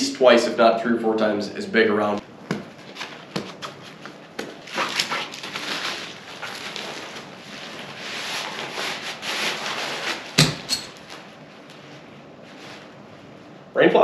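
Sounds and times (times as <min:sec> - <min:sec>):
nylon fabric rustling: 0:02.7 - 0:13.4.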